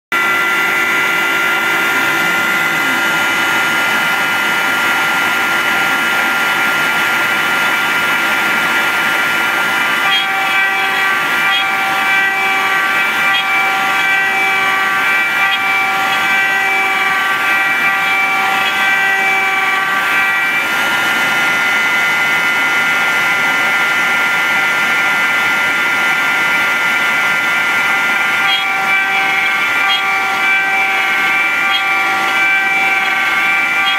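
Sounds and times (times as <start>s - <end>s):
end mill cutting wood: 0.1s - 33.9s
router spindle whining: 0.1s - 33.9s.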